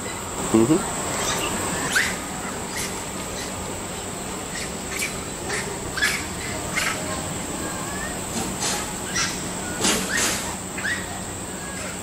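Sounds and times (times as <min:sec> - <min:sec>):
monkeys squealing: 0:00.0 - 0:03.6, 0:04.5 - 0:08.2, 0:09.0 - 0:12.0
insects buzzing: 0:00.0 - 0:12.0.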